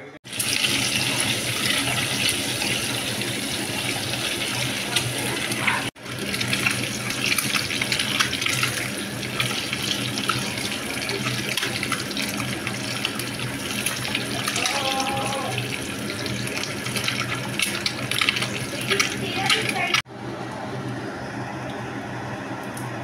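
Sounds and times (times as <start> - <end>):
eggs sizzling in hot oil: 0.2 - 20.1.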